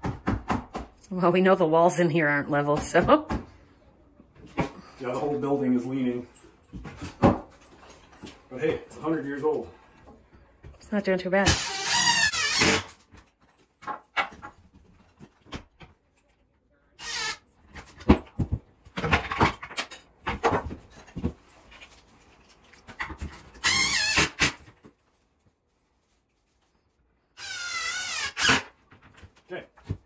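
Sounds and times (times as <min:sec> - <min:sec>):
knocks of lumber and tools: 0:06.8 - 0:08.3.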